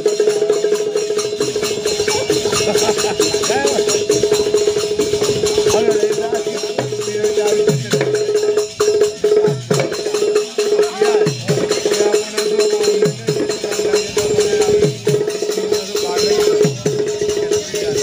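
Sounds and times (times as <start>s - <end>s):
barrel drum beating fast rhythm: 0.0s - 18.0s
rapidly pulsing high note: 1.2s - 6.6s.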